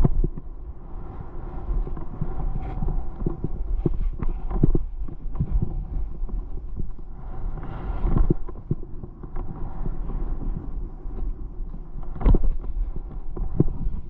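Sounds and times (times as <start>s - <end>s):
skis scraping over crusted snow: 0.0s - 14.0s
wind rumble on microphone: 0.0s - 14.0s.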